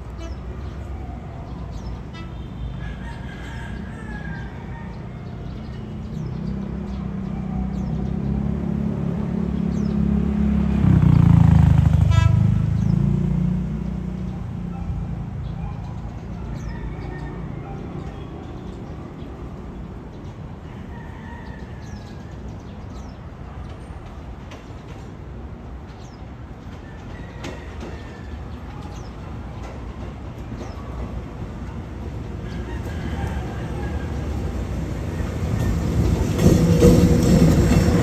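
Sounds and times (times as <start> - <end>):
rooster crowing: 2.8 - 5.5, 16.5 - 18.3, 20.7 - 22.3, 32.4 - 36.4
train engine rumble: 14.3 - 38.0.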